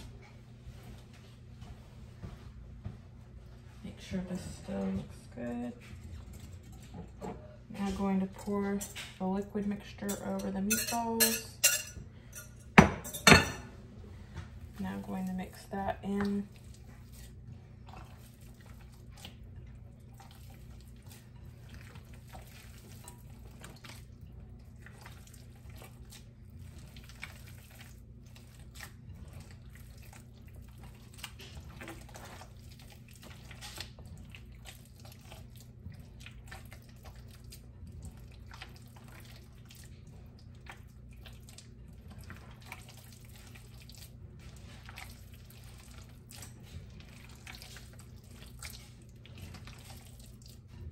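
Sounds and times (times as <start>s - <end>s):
hands squelching meat mixture: 14.2s - 50.9s.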